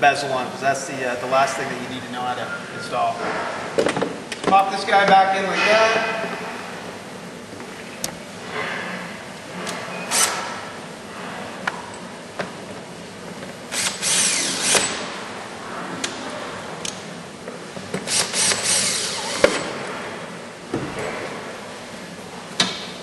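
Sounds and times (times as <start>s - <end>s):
cordless drill driving screws: 13.7s - 15.0s, 18.1s - 19.5s.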